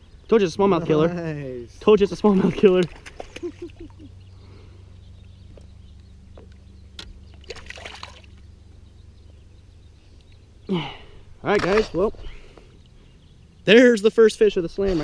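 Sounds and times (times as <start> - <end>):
steady low hum: 0.0 - 15.0
fish splashing in water: 2.4 - 3.8, 7.3 - 8.4.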